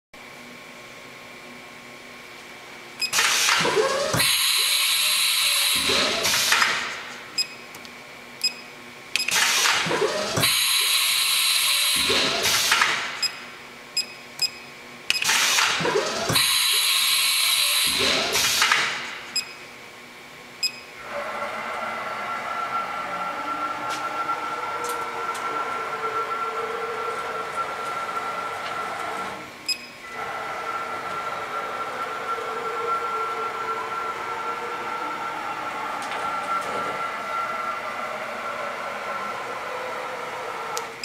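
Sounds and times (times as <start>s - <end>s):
steady machine hum: 0.2s - 41.0s
tool changer motor whir with hiss: 3.1s - 7.1s, 9.3s - 13.2s, 15.2s - 19.2s.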